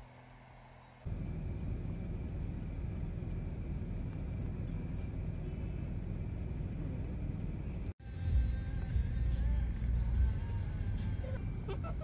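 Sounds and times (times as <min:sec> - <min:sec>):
car engine idling: 0:01.1 - 0:11.4.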